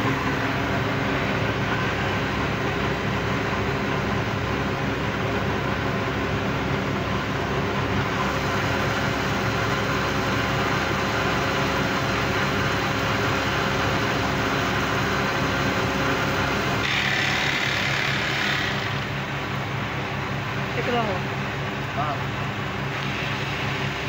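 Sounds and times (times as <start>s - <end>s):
electric machinery hum: 0.0s - 24.0s
sewing machine whirring: 16.8s - 19.2s.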